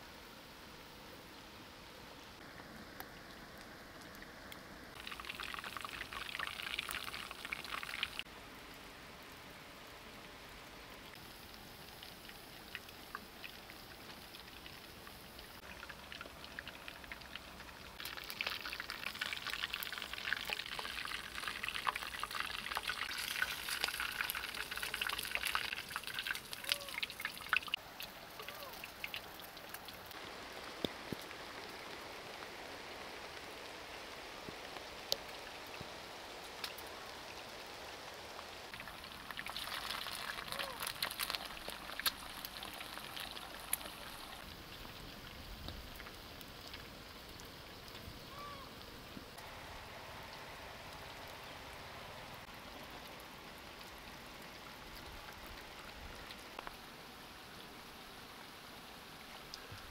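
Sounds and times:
hot oil sizzling and crackling: 2.4 - 8.3, 11.0 - 59.9.

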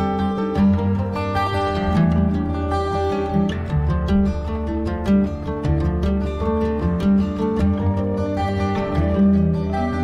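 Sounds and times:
plucked strings melody: 0.0 - 10.0.

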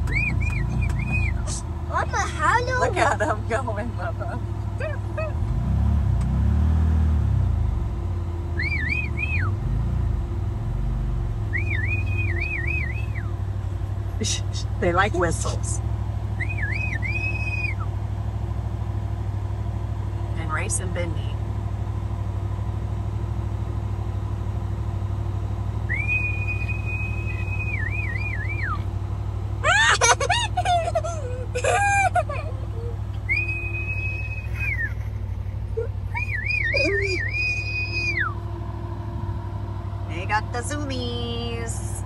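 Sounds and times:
utility vehicle engine running: 0.0 - 42.0
person whistling: 11.5 - 13.3, 16.4 - 17.8, 25.9 - 28.8, 33.3 - 34.9, 36.1 - 38.4.

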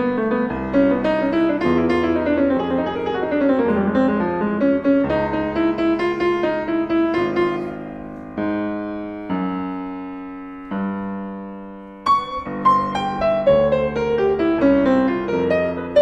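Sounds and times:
grand piano playing: 0.0 - 16.0.

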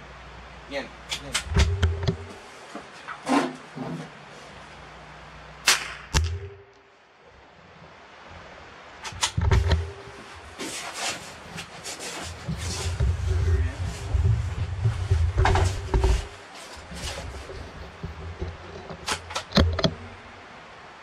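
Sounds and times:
rifle shot: 5.6 - 6.7.

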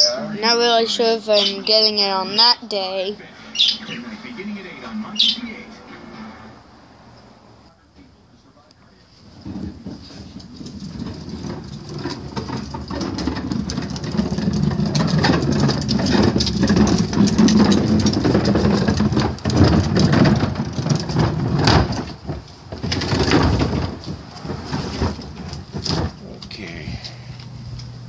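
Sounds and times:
wheeled bin rumbling: 0.0 - 7.6, 9.1 - 28.0
knocks and clatters: 9.2 - 26.6.

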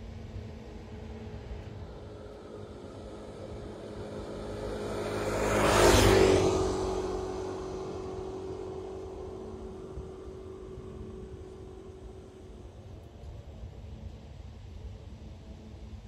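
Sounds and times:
low engine hum: 0.0 - 16.0
road vehicle passing by: 0.4 - 13.0.

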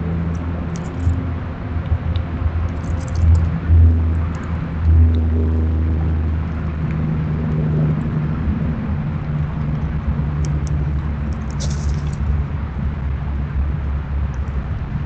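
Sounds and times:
engine rumbling: 0.0 - 15.0.

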